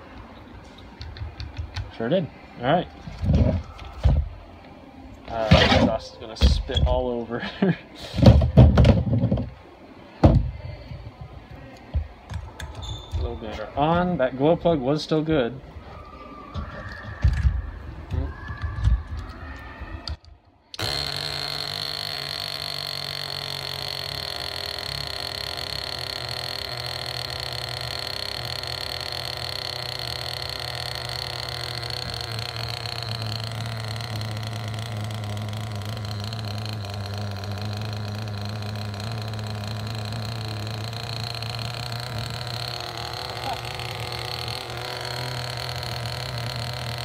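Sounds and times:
small two-stroke engine running: 20.8s - 47.0s.

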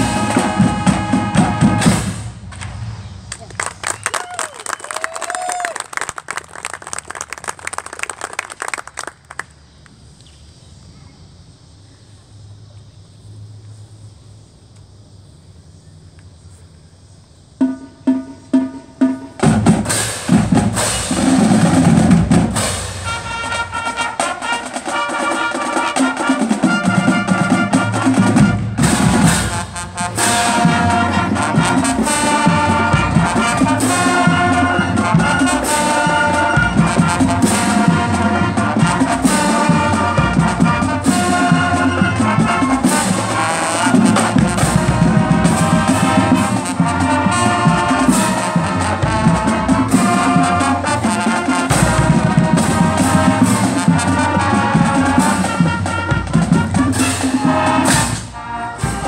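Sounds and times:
marching band playing: 0.0s - 5.1s, 17.6s - 59.0s.

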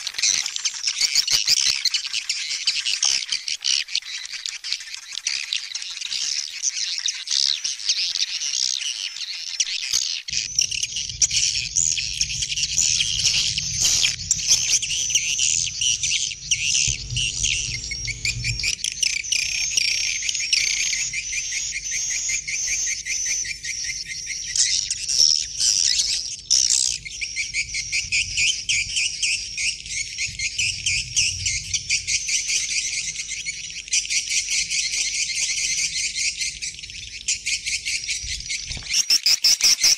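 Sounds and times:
birds twittering and chirping: 0.0s - 39.9s
low steady hum: 10.3s - 21.7s.

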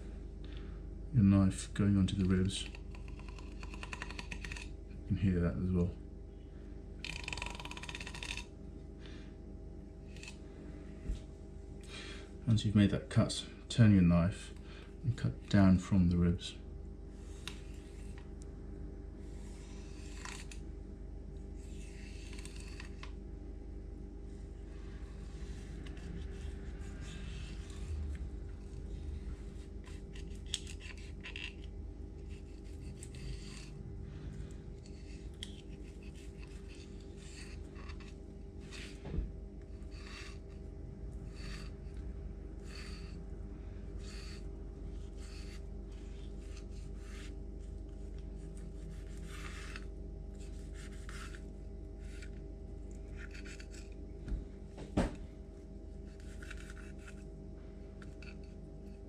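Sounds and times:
steady low hum: 0.0s - 59.0s
knife scraping fish rib bones: 53.1s - 54.0s.

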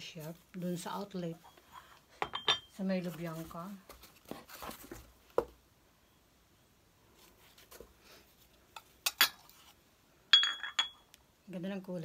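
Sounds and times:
porcelain cups being set down: 2.2s - 2.7s, 10.4s - 11.0s
porcelain clinks: 2.2s - 2.8s, 10.3s - 11.1s.

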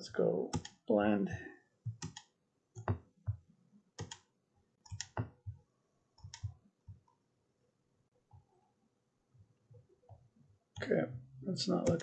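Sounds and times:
computer mouse clicking: 0.5s - 0.8s, 1.9s - 3.4s, 4.0s - 5.6s, 6.2s - 7.1s, 11.8s - 12.0s.

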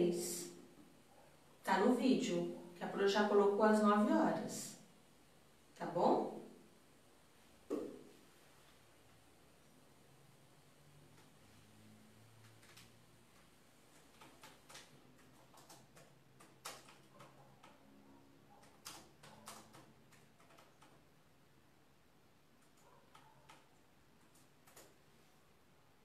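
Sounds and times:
faint laptop keyboard typing: 11.0s - 21.4s, 22.4s - 25.4s.

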